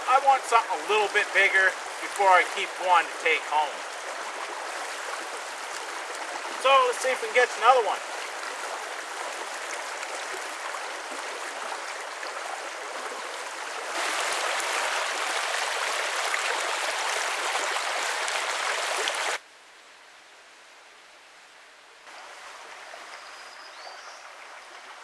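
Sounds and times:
brook rushing over stones: 0.0 - 19.4.

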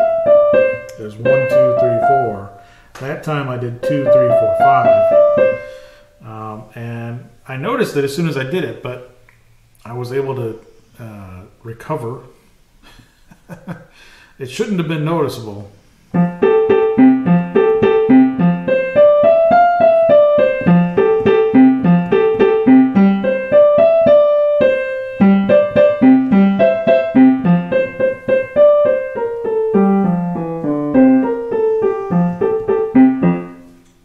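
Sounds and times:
digital piano piece: 0.0 - 6.6, 16.1 - 34.0.

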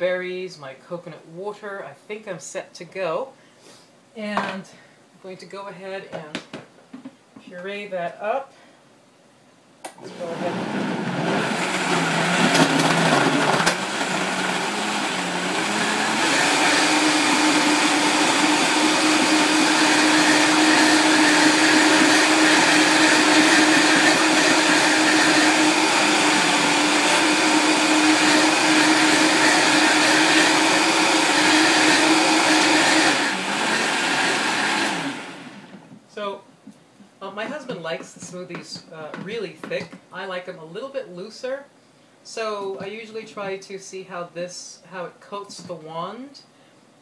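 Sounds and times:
blender pureeing: 9.9 - 35.8.

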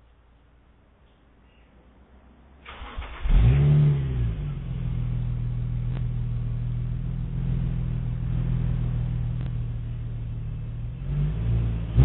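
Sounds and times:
car engine idling: 2.6 - 12.0.

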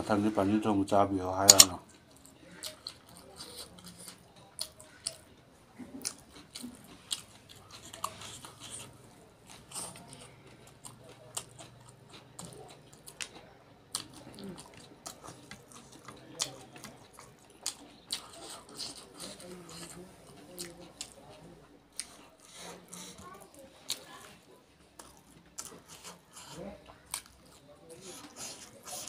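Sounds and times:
person chewing with wet mouth clicks: 9.5 - 20.0.

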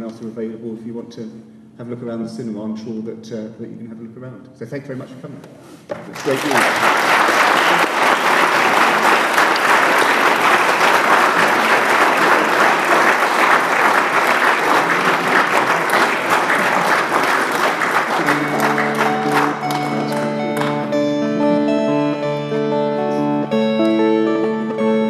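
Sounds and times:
audience applauding: 6.1 - 22.0
plucked guitar music: 18.0 - 25.0.

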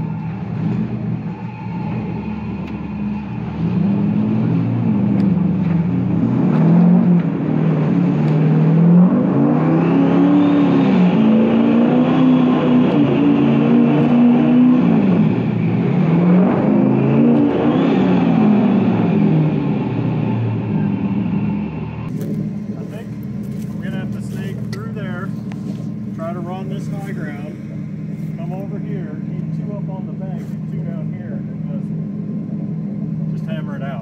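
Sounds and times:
turbo whine: 0.0 - 6.2
pickup engine revving: 0.0 - 34.0.

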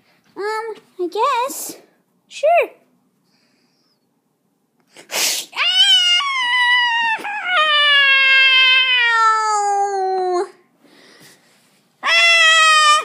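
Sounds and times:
person giving a high wailing cry: 5.6 - 10.6, 12.0 - 13.0.

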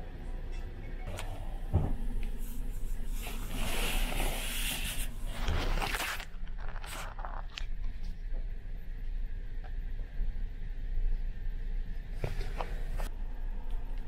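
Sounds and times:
rustling: 2.0 - 8.2.

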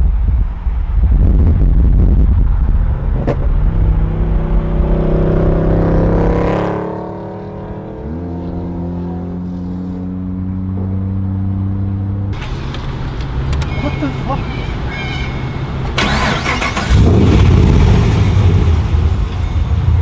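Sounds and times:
car engine drone at highway speed: 0.0 - 20.0
car accelerating past: 2.9 - 12.7.

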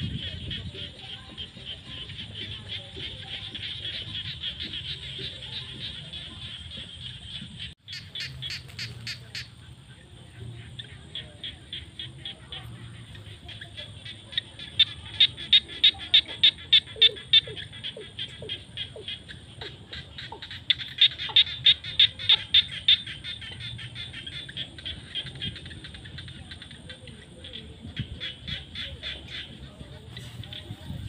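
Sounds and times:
loud pulsed frog calls: 0.0 - 10.0, 10.6 - 31.0
frog chorus: 0.0 - 31.0.

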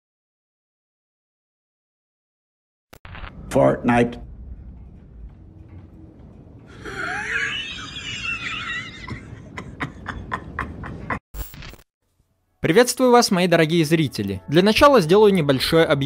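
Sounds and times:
low background rumble: 3.1 - 11.2
man laughing: 6.8 - 11.2.

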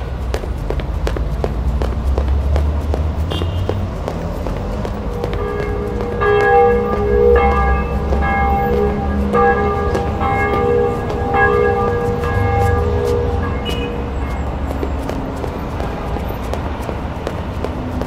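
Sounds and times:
low street rumble: 0.0 - 18.0
church bells ringing: 4.9 - 16.2.

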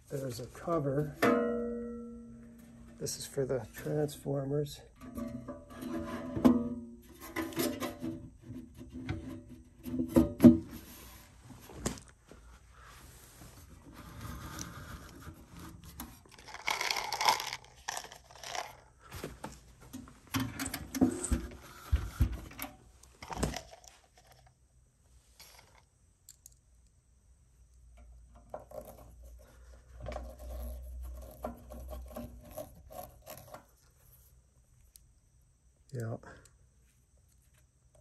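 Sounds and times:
metal parts scraping and clinking: 15.8 - 18.8, 20.4 - 21.6, 25.4 - 26.6.

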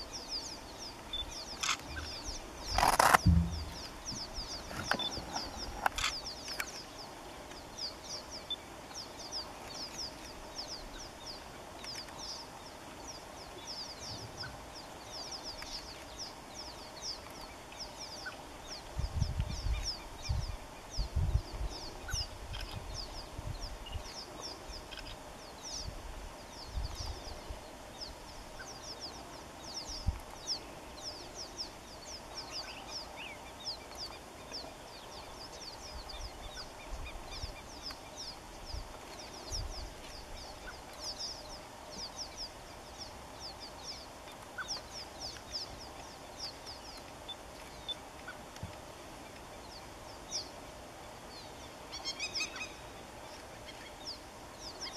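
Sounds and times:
birds chirping: 0.0 - 54.9
low rumbles and thumps: 2.7 - 5.6.

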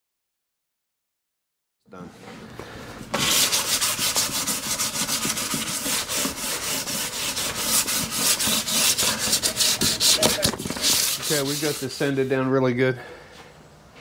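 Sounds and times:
sandpaper rubbing wood: 3.1 - 12.5.

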